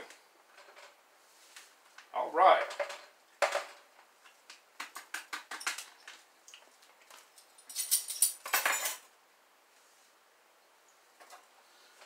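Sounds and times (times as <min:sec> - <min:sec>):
metal spoons clinking: 0:07.6 - 0:09.0.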